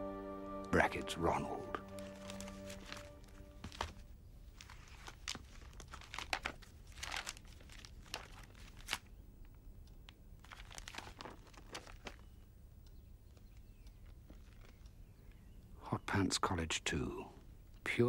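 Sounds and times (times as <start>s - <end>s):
magazine pages rustling: 2.0s - 9.2s, 10.4s - 12.3s.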